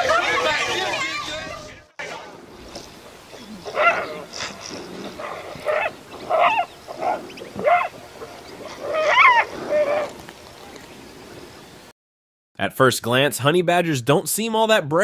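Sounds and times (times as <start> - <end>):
animal yelps and cries: 3.6 - 4.5, 5.2 - 8.0, 8.6 - 10.1.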